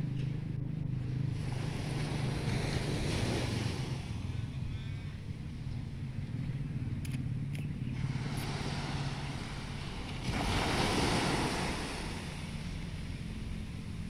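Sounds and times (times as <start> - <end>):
wind rumble on microphone: 0.0 - 14.0
small waves breaking on beach: 1.3 - 5.4, 7.9 - 14.0.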